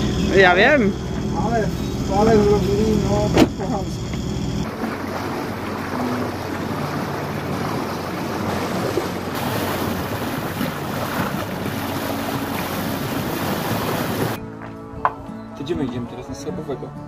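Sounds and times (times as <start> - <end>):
water rushing along hull: 1.6 - 14.4
wind buffeting microphone: 4.6 - 14.4.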